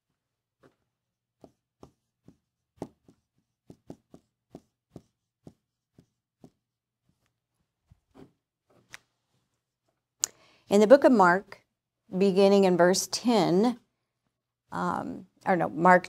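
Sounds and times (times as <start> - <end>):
marker writing on a whiteboard: 0.6 - 8.5.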